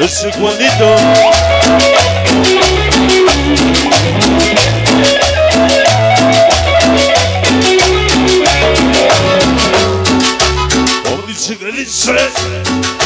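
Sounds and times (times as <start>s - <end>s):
quick percussion strokes: 0.0s - 11.4s
bass line: 0.0s - 13.0s.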